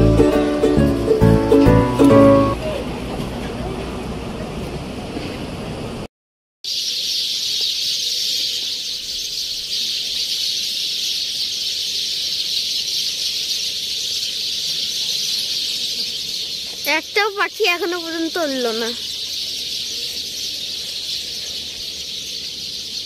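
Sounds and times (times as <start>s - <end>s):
chorus of birds chirping: 6.7s - 23.0s.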